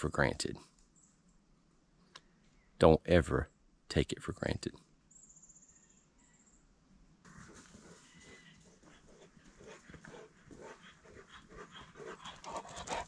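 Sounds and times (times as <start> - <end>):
dog panting: 7.4 - 13.0.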